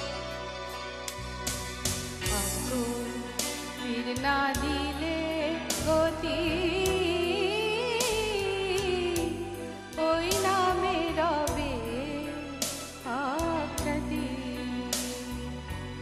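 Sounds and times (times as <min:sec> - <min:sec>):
instrumental accompaniment: 0:00.0 - 0:16.0
woman singing with vibrato: 0:02.3 - 0:12.4, 0:13.0 - 0:15.6.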